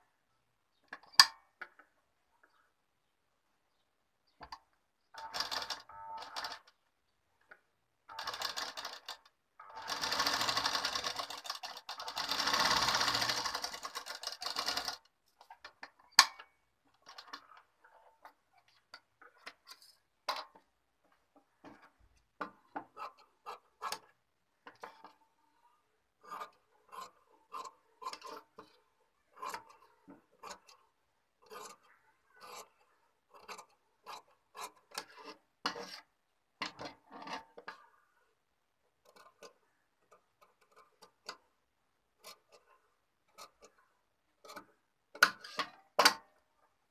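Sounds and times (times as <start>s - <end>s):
sewing machine stitching: 5.2s - 6.7s, 8.1s - 15.1s.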